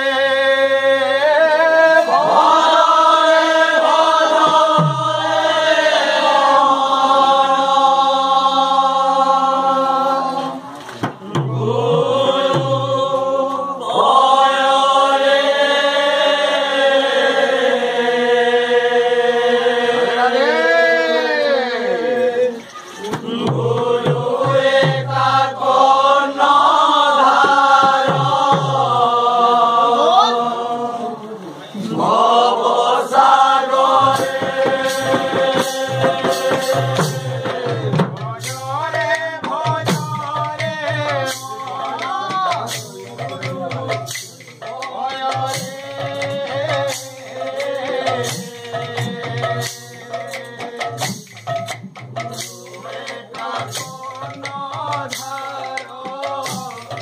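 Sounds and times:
men chanting together: 0:00.0 - 0:51.6, 0:52.2 - 0:57.0
drum strokes: 0:02.0 - 0:07.6, 0:10.5 - 0:15.3, 0:22.5 - 0:29.6, 0:31.8 - 0:57.0.

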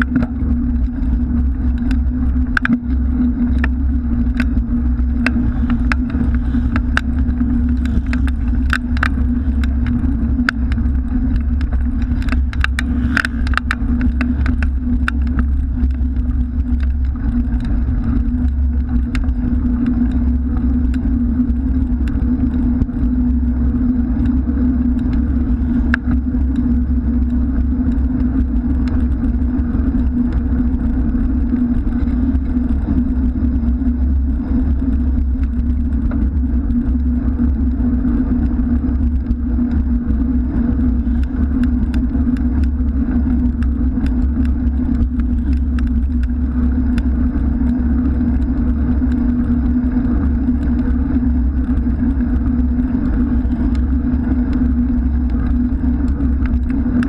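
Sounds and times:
car traffic: 0:00.0 - 0:21.5
light ticks from bicycle: 0:00.0 - 0:57.0
road vibration rumble: 0:00.0 - 0:57.0
wind buffeting: 0:00.0 - 0:57.0.

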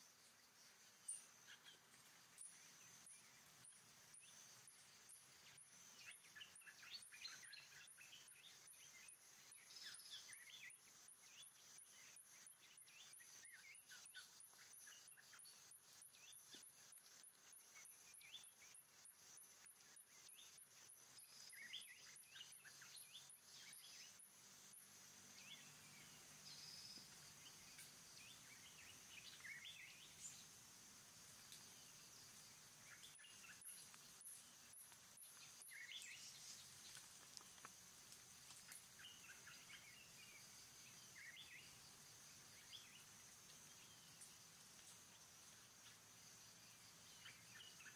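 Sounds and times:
high insect drone: 0:00.0 - 0:47.9
evenly spaced ticks: 0:33.1 - 0:39.5.

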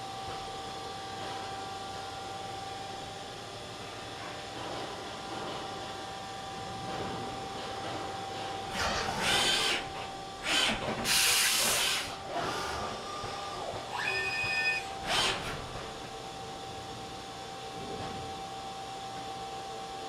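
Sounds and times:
multi-tone mechanical whine: 0:04.6 - 0:20.0
machine high whine: 0:06.3 - 0:17.3
hissing air blasts: 0:10.4 - 0:12.6.

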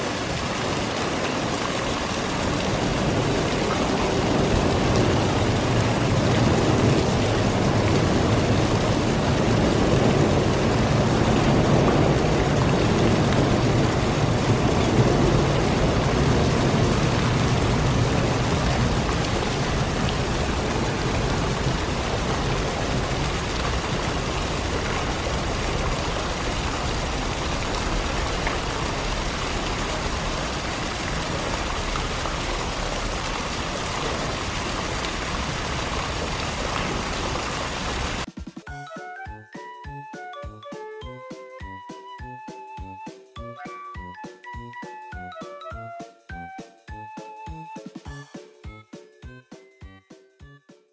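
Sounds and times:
water splashing and sloshing: 0:00.0 - 0:39.2.

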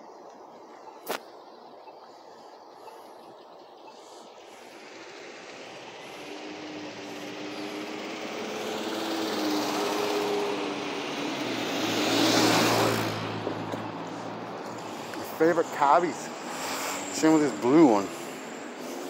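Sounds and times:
car passing by: 0:03.9 - 0:19.0.

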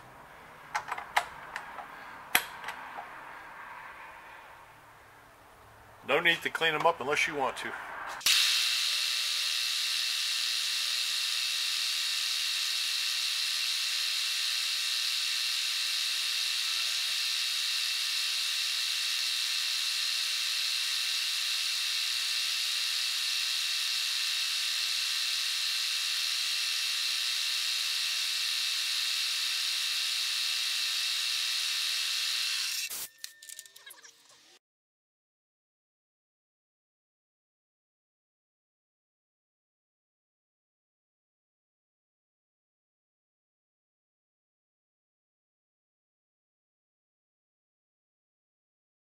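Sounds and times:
milling machine cutting: 0:08.2 - 0:33.0.

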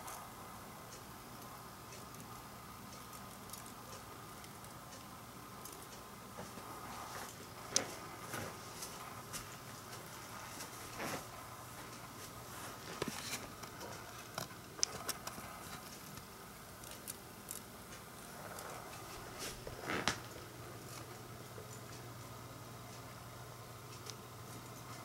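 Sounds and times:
rustling: 0:05.6 - 0:21.2.

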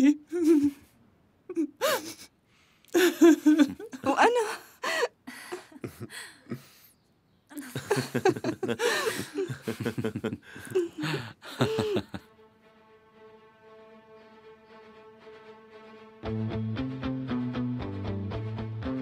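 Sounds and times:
people laughing: 0:03.0 - 0:06.9, 0:07.5 - 0:12.3
soft held string music: 0:12.1 - 0:19.0.

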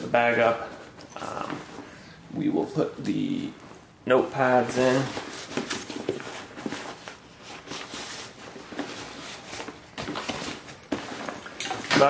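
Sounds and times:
fabric rustling and scraping: 0:03.4 - 0:12.0.

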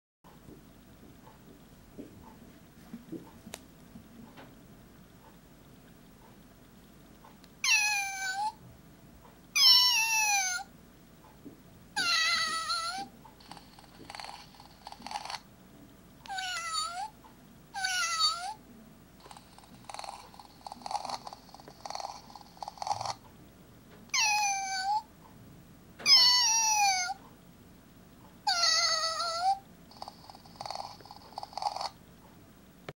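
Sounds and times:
toy cat recorded meows: 0:07.6 - 0:08.6, 0:09.6 - 0:10.7, 0:12.0 - 0:15.4, 0:16.2 - 0:17.1, 0:17.7 - 0:18.6, 0:24.1 - 0:25.1, 0:26.0 - 0:27.2, 0:28.4 - 0:32.0
rough purring: 0:13.4 - 0:15.4, 0:19.2 - 0:23.2, 0:29.9 - 0:32.0.

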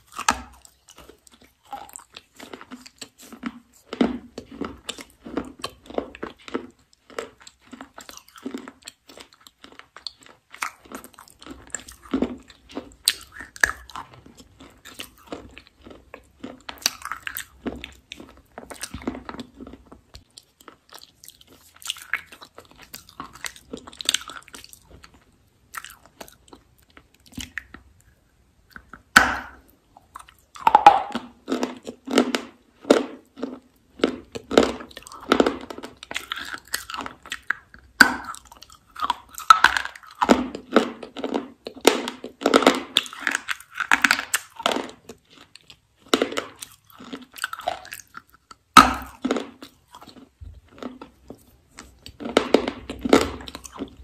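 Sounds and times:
person chewing crunchy food: 0:00.0 - 0:54.0
sharp crunchy bite: 0:28.8 - 0:45.5, 0:46.1 - 0:51.1.

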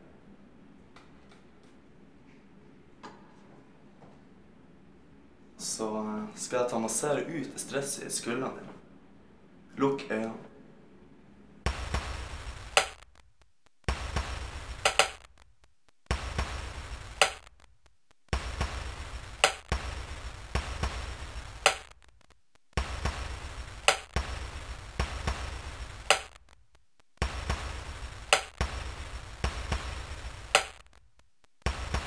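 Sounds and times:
hiss over low hum: 0:03.8 - 0:32.0
sharp click: 0:12.7 - 0:13.3, 0:14.8 - 0:15.5, 0:17.2 - 0:17.7, 0:19.4 - 0:19.7, 0:21.6 - 0:22.2, 0:23.8 - 0:24.2, 0:26.0 - 0:26.5, 0:28.2 - 0:28.6, 0:30.5 - 0:31.7.

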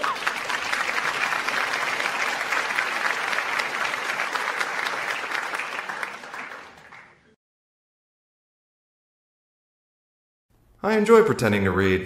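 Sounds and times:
studio audience applause: 0:00.0 - 0:07.4.

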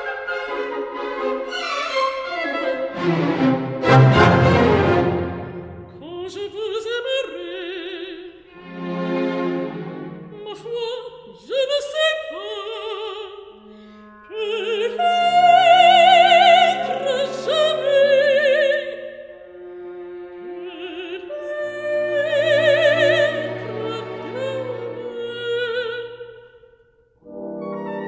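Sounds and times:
orchestral accompaniment: 0:00.0 - 0:06.7, 0:08.5 - 0:10.6, 0:27.2 - 0:28.0
operatic singing: 0:00.0 - 0:19.4, 0:20.4 - 0:26.6.

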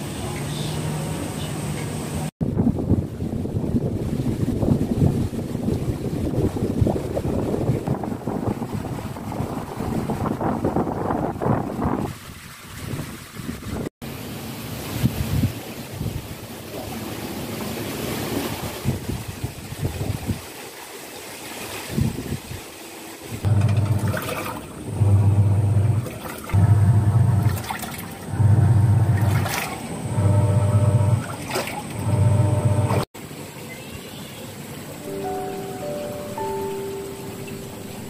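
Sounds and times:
wind gusting over microphone: 0:02.4 - 0:13.9, 0:14.9 - 0:16.5, 0:18.3 - 0:20.5, 0:21.9 - 0:22.6
washing machine motor humming: 0:23.4 - 0:33.1.

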